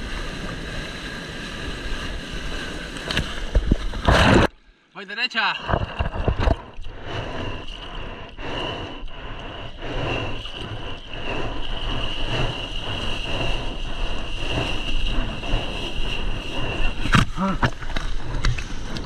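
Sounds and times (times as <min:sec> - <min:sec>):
seawater splashing and rushing: 0:00.0 - 0:04.5, 0:05.7 - 0:19.0
paddle strokes in water: 0:05.7 - 0:19.0.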